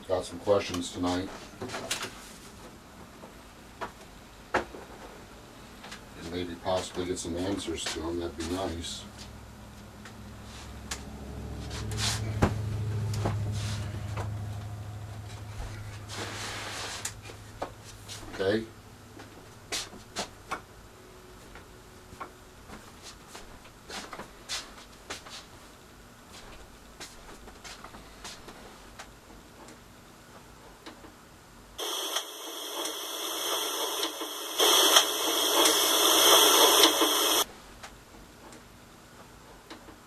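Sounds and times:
harsh static hiss: 31.8 - 37.5.

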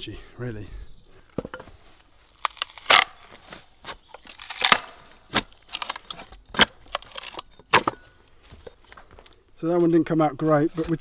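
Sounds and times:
wood crackling and tearing: 1.9 - 8.0.

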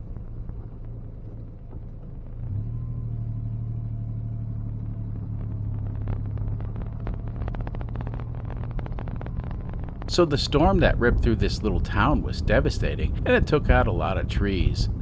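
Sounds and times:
diesel engine rumble in cabin: 0.0 - 15.0
rapid engine clatter: 4.5 - 15.0.

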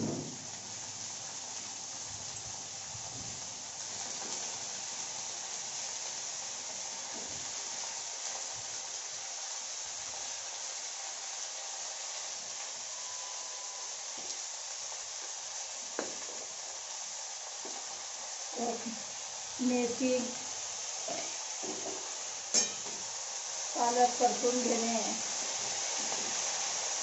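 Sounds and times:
greens sizzling in hot oil: 0.0 - 27.0.

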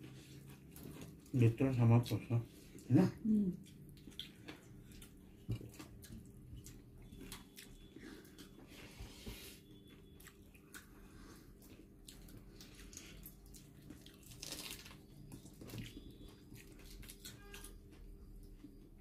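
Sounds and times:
wet chewing and mouth smacks: 3.5 - 8.7, 9.8 - 18.7.

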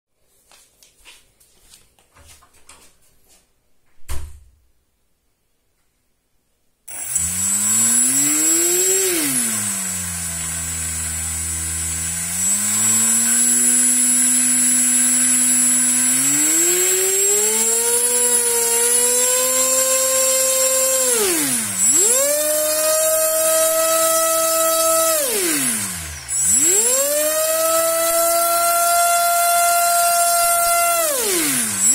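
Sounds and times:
electric motor whine: 6.9 - 31.9.

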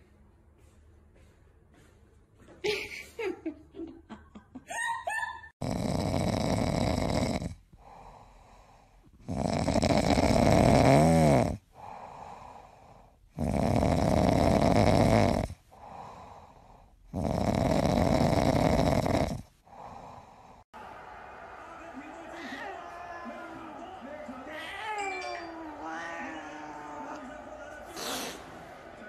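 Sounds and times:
cat rasping breaths: 7.7 - 9.3, 11.6 - 13.4, 15.6 - 20.7.

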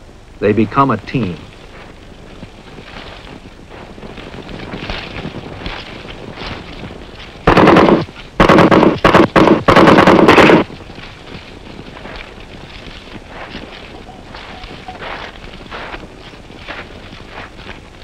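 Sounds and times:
automatic rifle bursts: 7.5 - 10.6.

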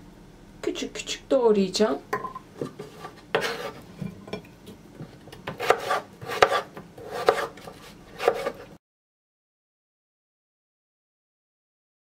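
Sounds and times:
knife striking cutting board: 2.2 - 3.7, 5.4 - 8.6.

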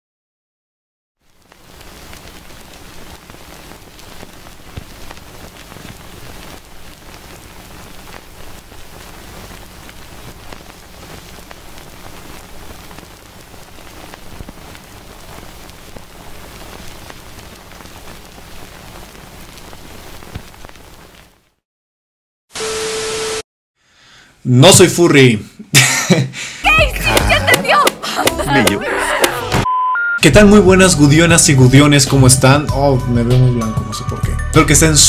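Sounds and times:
steady rain hiss: 1.2 - 21.6, 25.8 - 29.2, 30.4 - 32.7.

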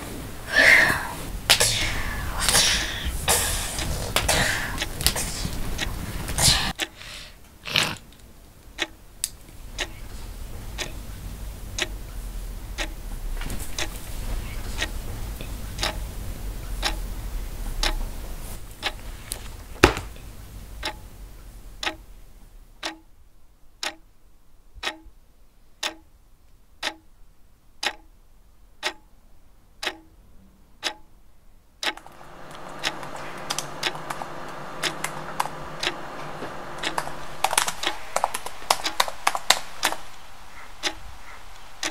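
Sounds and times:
low rumble: 0.0 - 6.8, 8.2 - 22.8, 32.0 - 41.9
clock ticking: 0.0 - 23.2, 23.8 - 24.1, 24.8 - 25.2, 25.8 - 26.2, 26.8 - 27.2, 27.8 - 28.2, 28.8 - 29.2, 29.8 - 30.2, 30.8 - 31.2, 31.8 - 41.9
steady multi-tone hum: 0.0 - 41.9.

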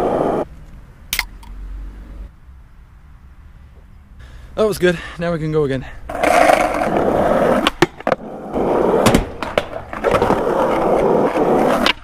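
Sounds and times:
skateboard wheels rolling on concrete: 0.0 - 12.0
skateboard clacks: 6.1 - 12.0.

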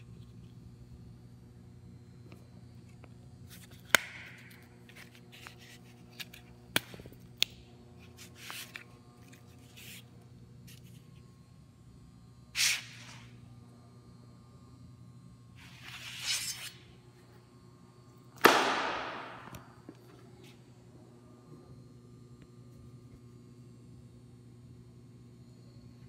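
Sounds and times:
steady low hum: 0.0 - 26.0
brushing rustles: 8.0 - 11.1.

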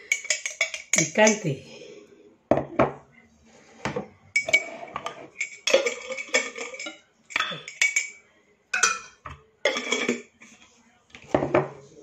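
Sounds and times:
spoon clinking and scraping on plate: 0.0 - 1.5, 3.7 - 8.2, 8.8 - 10.6.

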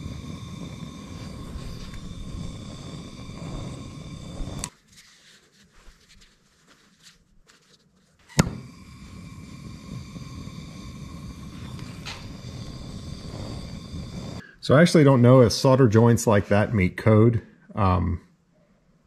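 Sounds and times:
gas torch flame roaring: 0.0 - 4.8, 8.3 - 16.7
torch lighting pop: 8.3 - 9.9.

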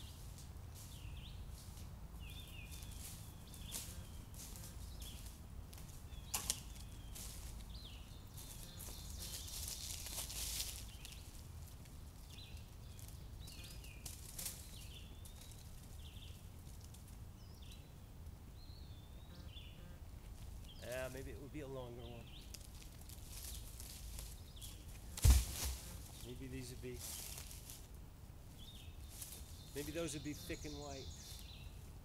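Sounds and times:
footsteps in dry leaves: 0.0 - 17.1, 22.3 - 27.9, 28.6 - 31.7
songbird chirping: 0.0 - 32.0
branch snapping: 6.3 - 6.7, 25.1 - 25.8.

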